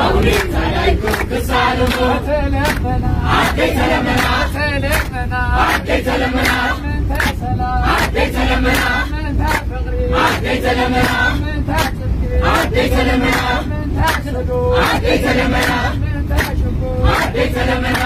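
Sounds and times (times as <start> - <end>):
bus rumble: 0.0 - 18.0
group singing a hymn: 0.0 - 18.0
hand claps: 0.2 - 2.9, 4.2 - 7.4, 9.5 - 9.7, 11.8 - 12.0, 13.2 - 15.0, 16.4 - 17.3.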